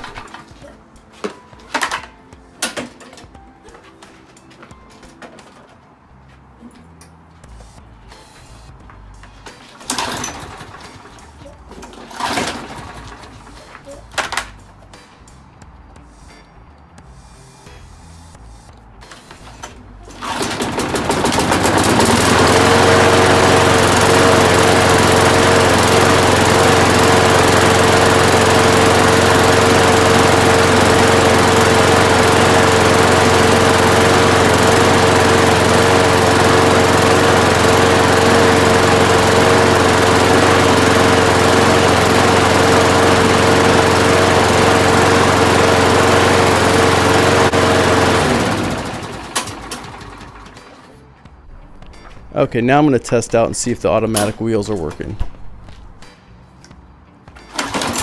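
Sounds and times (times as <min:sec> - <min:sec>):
lawn mower engine running: 0:09.3 - 0:15.0, 0:19.2 - 0:51.1, 0:57.4 - 0:58.0.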